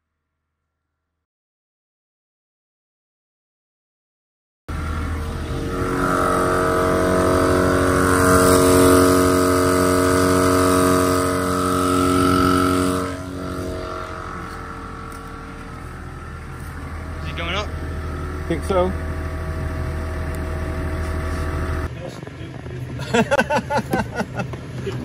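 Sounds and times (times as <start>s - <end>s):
air compressor running: 4.7s - 21.9s.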